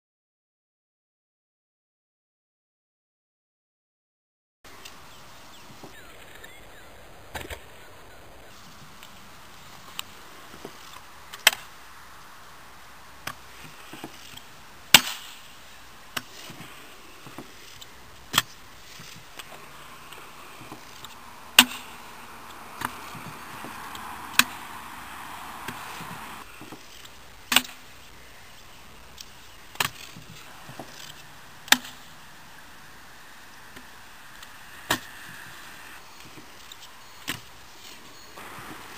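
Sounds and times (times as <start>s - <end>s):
hard wheels rolling over concrete: 18.3s - 26.8s.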